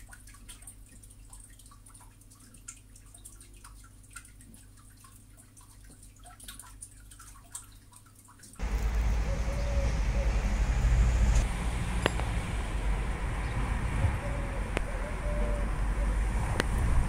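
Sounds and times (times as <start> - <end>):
road traffic: 8.6 - 17.0
wind rumbling on microphone: 8.6 - 17.0.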